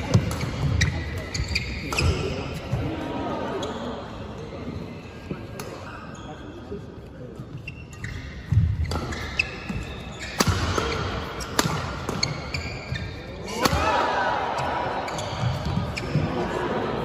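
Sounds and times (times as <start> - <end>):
racket hitting shuttlecock: 0.0 - 2.4, 8.4 - 16.1
shoe squeaks: 0.4 - 2.2, 5.8 - 6.6, 7.5 - 13.4, 15.1 - 16.3.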